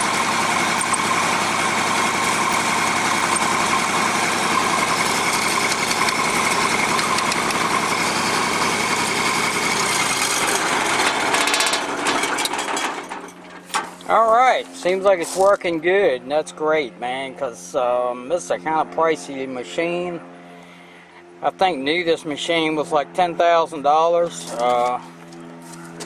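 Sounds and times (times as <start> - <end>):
engine winding down: 0.0 - 13.6
diesel engine running: 0.0 - 26.0.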